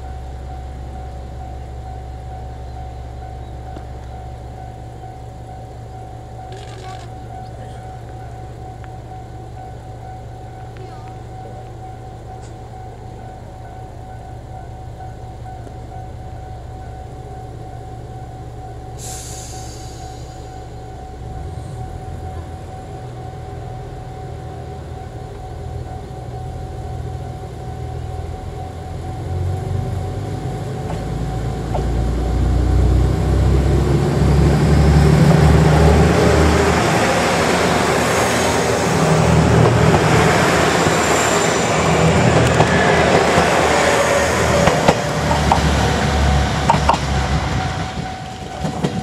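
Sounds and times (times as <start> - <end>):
diesel train engine: 0.0 - 49.0.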